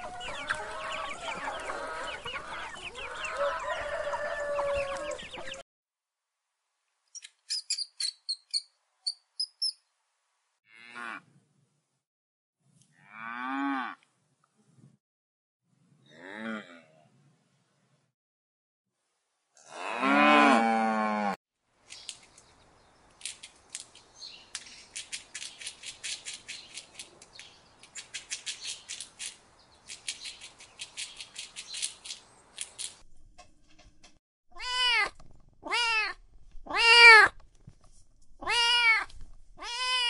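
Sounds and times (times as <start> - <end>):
cow mooing: 10.7 - 11.2, 19.6 - 21.4
kitten meowing: 38.4 - 40.0.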